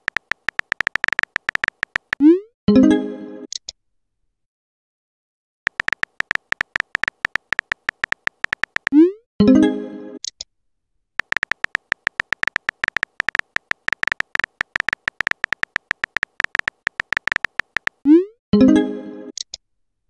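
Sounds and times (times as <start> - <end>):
phone keyboard typing clicks: 0.0 - 2.2, 5.7 - 9.0, 11.2 - 18.0.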